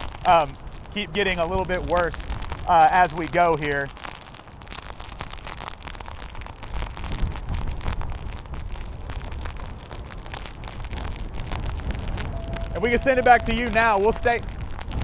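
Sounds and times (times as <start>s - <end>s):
rain striking microphone: 0.0s - 15.0s
wind buffeting microphone: 0.0s - 15.0s.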